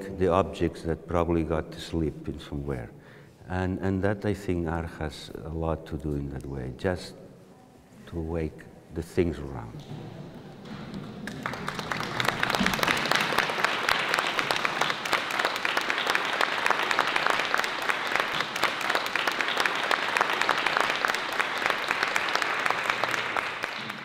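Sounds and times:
audience applauding: 10.7s - 24.0s.

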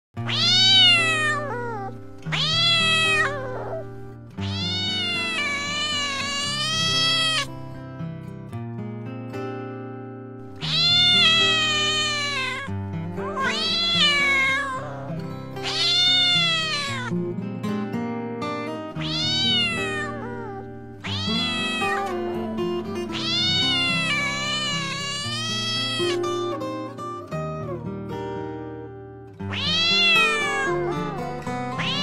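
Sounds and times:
kitten meowing loudly: 0.2s - 7.5s, 10.5s - 17.1s, 19.0s - 22.4s, 23.1s - 26.3s, 29.5s - 31.2s, 31.8s - 32.0s.

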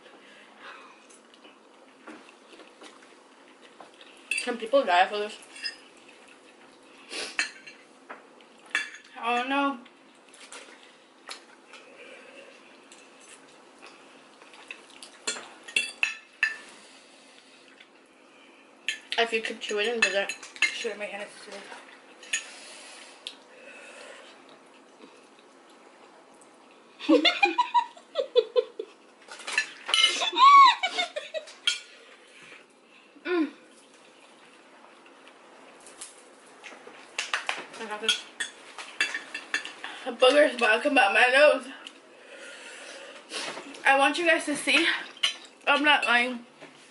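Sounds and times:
forks scraping on plates: 29.5s - 30.3s.

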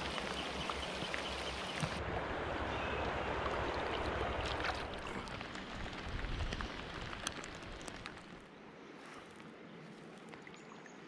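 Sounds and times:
river water rushing along boat: 0.0s - 6.4s.

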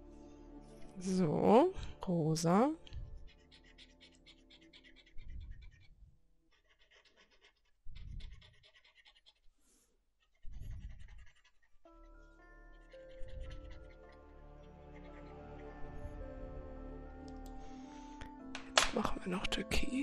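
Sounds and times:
marker scribbling on paper: 3.2s - 9.4s, 10.4s - 11.7s, 12.6s - 13.9s.

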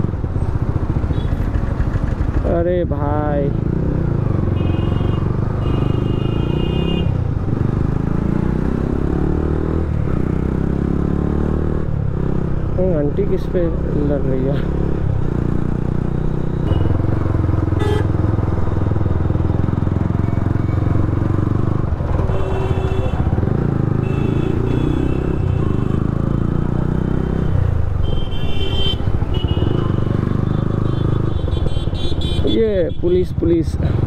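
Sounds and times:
city traffic noise: 0.0s - 34.0s
motorcycle engine running: 0.0s - 34.0s.

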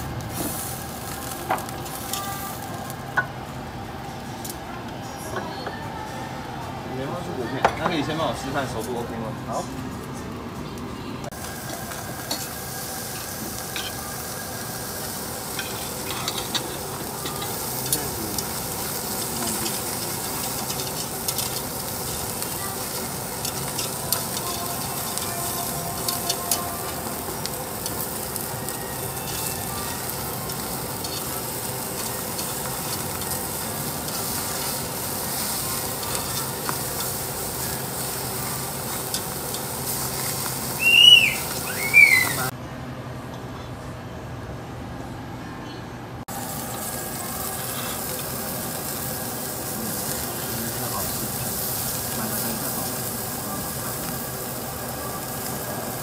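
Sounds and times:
meat sizzling on a grill: 0.0s - 4.6s, 11.3s - 42.5s, 46.3s - 56.0s.

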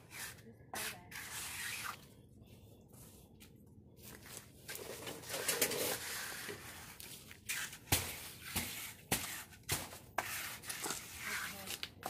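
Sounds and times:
trowel scraping wet concrete: 0.1s - 2.0s, 4.8s - 11.8s.

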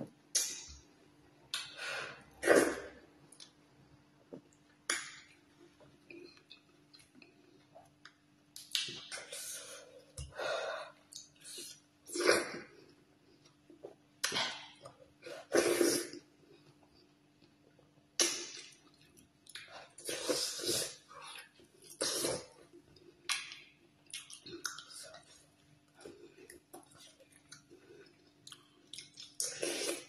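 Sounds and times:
quiet chewing: 22.6s - 30.0s.

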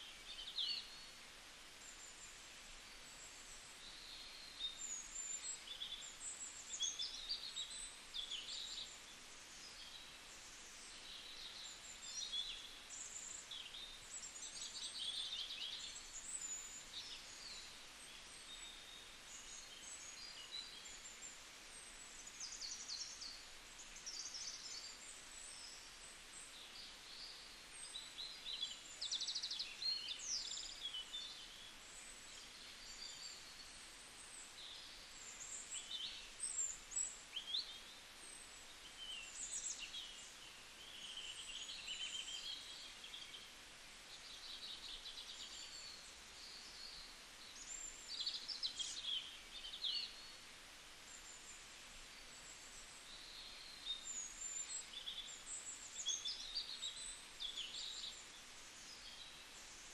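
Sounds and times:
faint steady hiss: 0.0s - 59.9s
small birds chirping: 0.0s - 59.9s.

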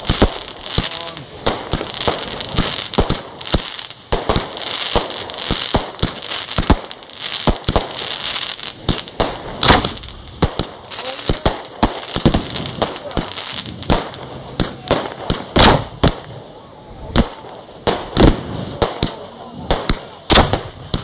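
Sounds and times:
fireworks banging: 0.0s - 21.0s
fireworks crackling and hiss: 0.0s - 21.0s.

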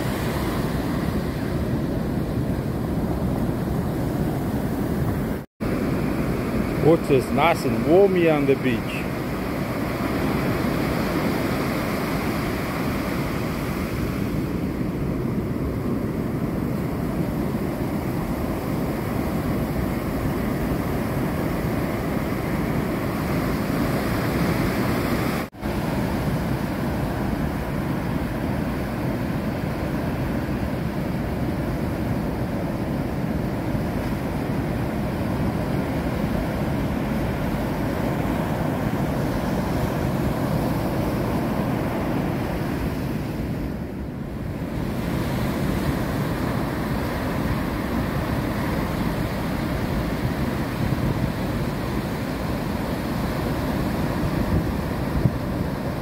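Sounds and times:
ocean surf breaking on beach: 0.0s - 56.0s.

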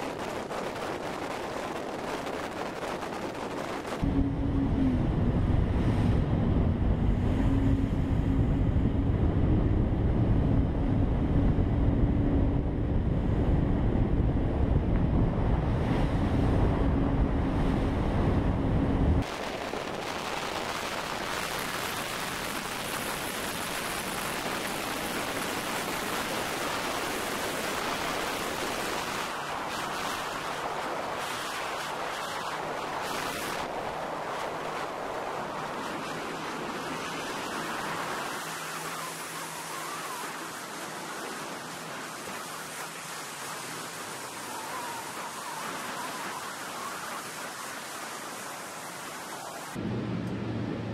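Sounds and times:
wind buffeting microphone: 0.0s - 47.7s
low engine drone: 2.2s - 30.4s, 33.6s - 47.2s, 49.3s - 50.9s
water rushing past hull: 12.6s - 50.9s
hiss of spray and wake: 19.2s - 49.8s.

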